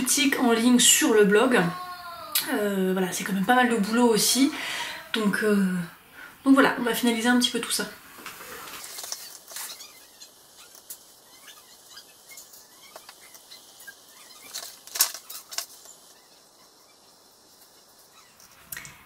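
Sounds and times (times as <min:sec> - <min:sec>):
paper rustling: 0:08.2 - 0:10.0.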